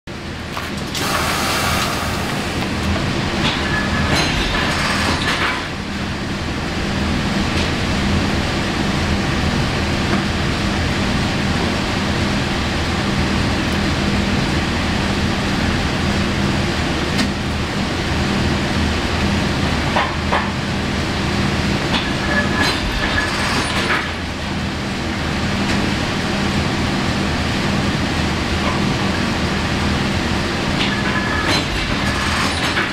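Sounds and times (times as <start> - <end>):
heat sealer mechanical drone: 0.1 - 19.9.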